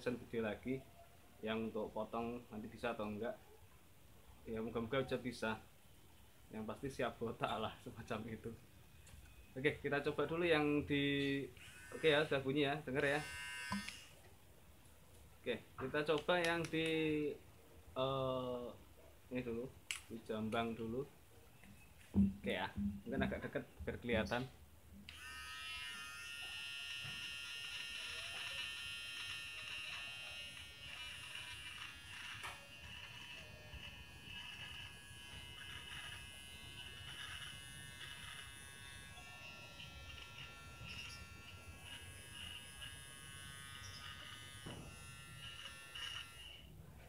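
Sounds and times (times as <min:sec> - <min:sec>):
electric hair clipper buzzing: 0:11.5 - 0:14.2, 0:25.1 - 0:46.7
small crackles: 0:25.1 - 0:46.6.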